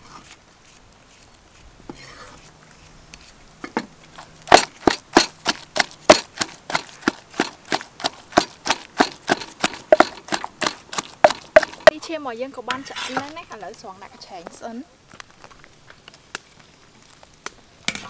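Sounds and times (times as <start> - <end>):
wooden pestle pounding in mortar: 4.5 - 12.0.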